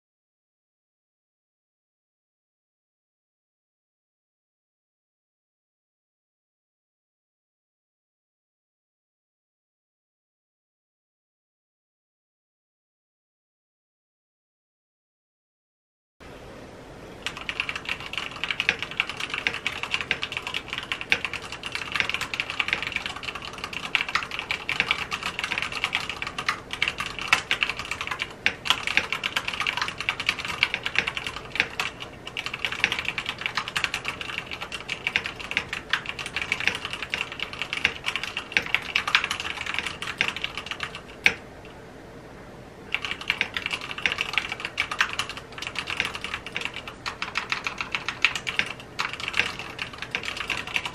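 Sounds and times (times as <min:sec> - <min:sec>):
typing on mechanical keyboard: 0:17.2 - 0:41.4, 0:42.9 - 0:50.9.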